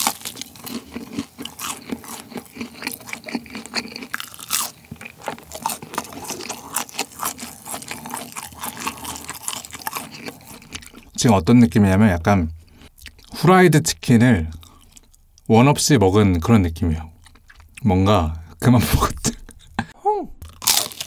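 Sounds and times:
crunchy chewing: 0:00.0 - 0:11.2, 0:12.6 - 0:13.4, 0:14.4 - 0:15.5, 0:17.1 - 0:17.8, 0:20.4 - 0:21.0.

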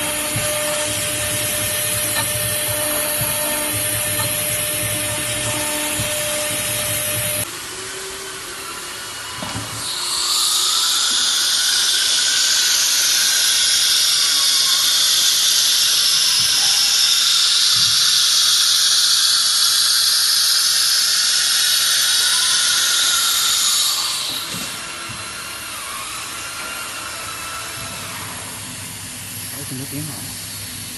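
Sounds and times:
router spindle cutting plate: 0:00.0 - 0:07.6
loud steady high hiss: 0:27.9 - 0:30.9.

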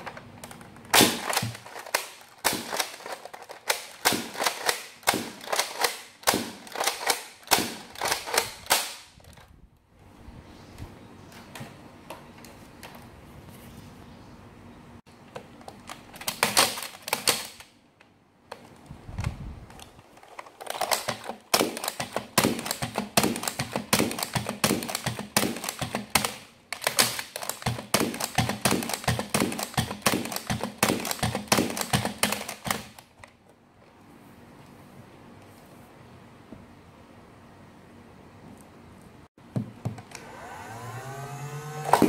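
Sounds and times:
sharp plastic clacks: 0:00.0 - 0:09.5, 0:15.2 - 0:33.6.

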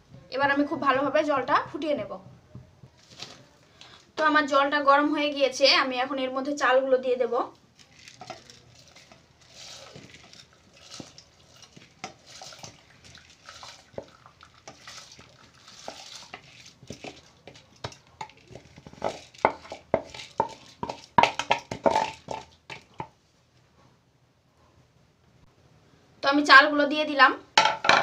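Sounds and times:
rice sliding into boiling water: 0:08.1 - 0:19.5
spatula scraping and knocking bowl: 0:08.1 - 0:23.2.

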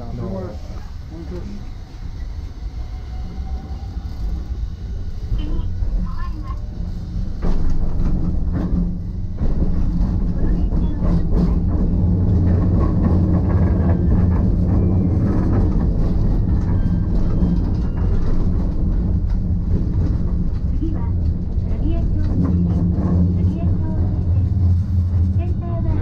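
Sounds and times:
tram wheels and motors rumbling: 0:00.0 - 0:26.0
wheels clicking on track: 0:05.4 - 0:26.0.

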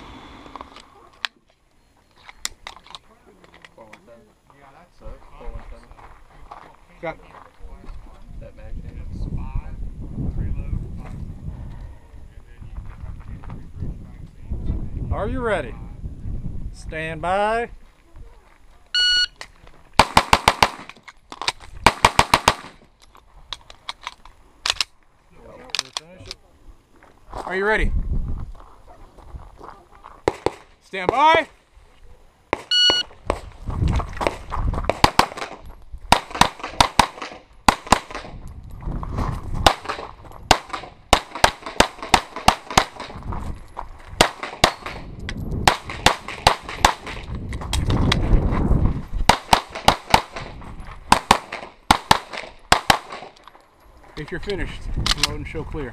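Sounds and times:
pistol shots: 0:20.0 - 0:20.9, 0:21.8 - 0:22.8, 0:34.2 - 0:38.4, 0:39.6 - 0:43.2, 0:44.2 - 0:47.3, 0:49.3 - 0:50.5, 0:51.1 - 0:53.4.

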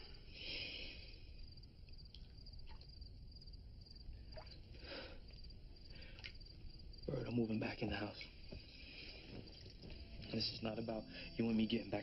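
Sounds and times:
soft breaths: 0:00.0 - 0:01.6, 0:04.7 - 0:06.5, 0:08.2 - 0:10.3
crickets chirping: 0:00.0 - 0:12.0.

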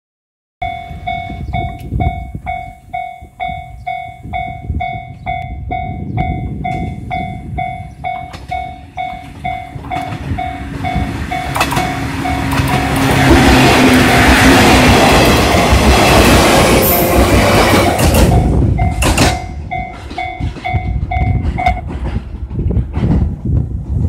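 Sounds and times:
level-crossing warning bell ringing: 0:00.6 - 0:21.9
electric train running: 0:06.2 - 0:22.3.

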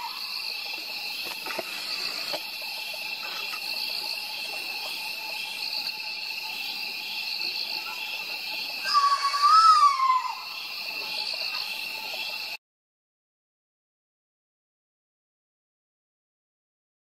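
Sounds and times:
crickets trilling: 0:00.0 - 0:12.6.

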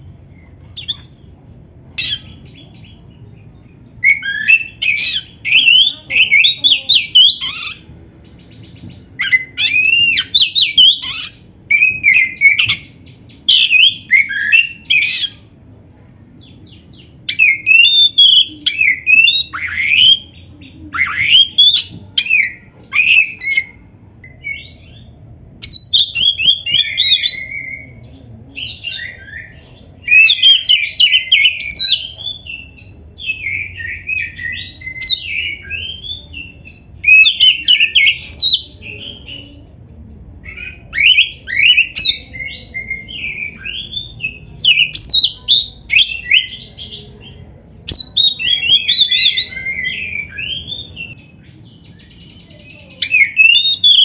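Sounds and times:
bird singing whistled song: 0:03.7 - 0:07.8, 0:08.4 - 0:15.4, 0:16.4 - 0:54.0.

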